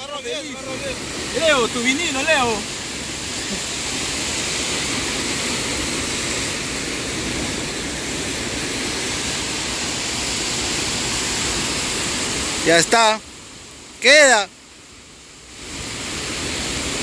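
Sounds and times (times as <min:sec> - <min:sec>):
surf breaking against rocks: 0:00.0 - 0:13.1
wind: 0:00.0 - 0:17.0.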